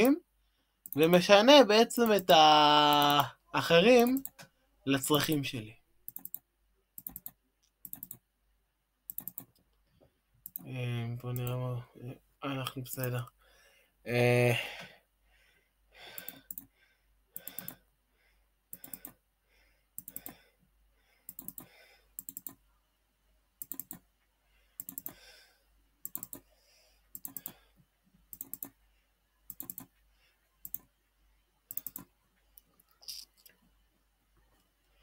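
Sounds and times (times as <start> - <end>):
computer mouse clicking: 0.8 - 1.2, 4.0 - 4.5, 6.0 - 8.3, 9.1 - 9.8, 10.4 - 10.7, 11.3 - 11.6, 16.2 - 16.7, 17.4 - 17.8, 18.7 - 19.2, 20.0 - 20.4, 21.2 - 22.6, 23.6 - 24.1, 24.8 - 25.2, 26.0 - 26.5, 27.1 - 27.6, 28.2 - 28.8, 29.4 - 30.0, 30.6 - 31.0, 31.7 - 33.6.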